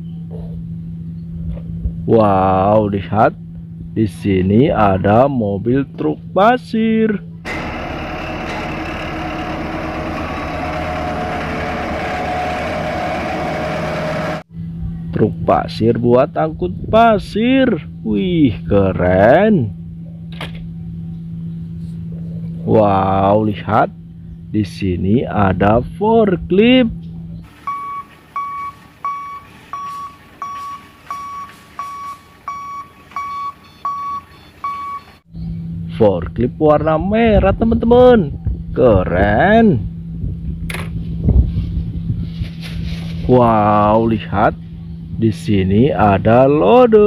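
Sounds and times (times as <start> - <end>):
heavy diesel engines running: 6.1 - 15.5, 17.4 - 37.6
forklift warning beeps: 7.5 - 14.4, 27.5 - 35.2.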